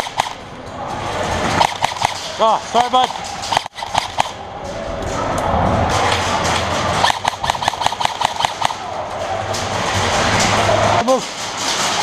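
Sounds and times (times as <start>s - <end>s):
airsoft rifle rapid fire: 0.0s - 0.4s, 1.6s - 2.2s, 3.5s - 4.4s, 7.0s - 8.8s
hall noise: 0.0s - 12.0s
distant shooting: 1.6s - 2.3s, 7.0s - 8.8s.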